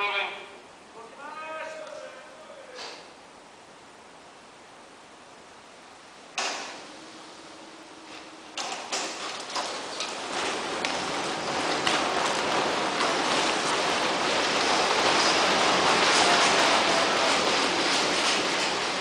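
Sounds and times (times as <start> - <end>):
rushing fabric and rigging: 9.2 - 19.0.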